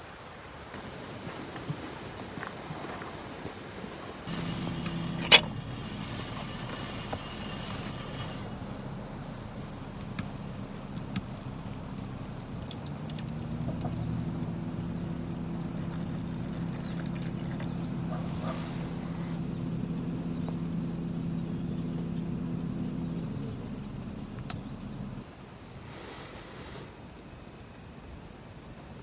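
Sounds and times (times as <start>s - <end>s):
engine running hum: 4.3s - 25.3s.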